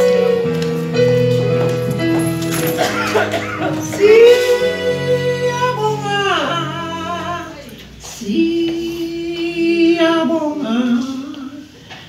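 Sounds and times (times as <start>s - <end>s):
woman singing into microphone: 3.7s - 11.8s.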